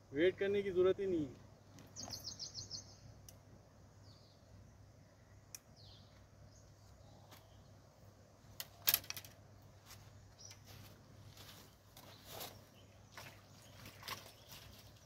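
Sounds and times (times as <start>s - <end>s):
faint bird chirps: 1.6s - 3.3s, 4.0s - 7.8s, 9.9s - 15.0s.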